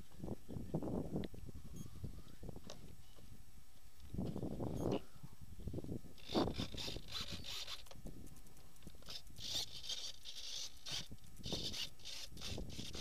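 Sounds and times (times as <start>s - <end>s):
wind gusting over microphone: 0.0s - 8.5s, 10.8s - 13.0s.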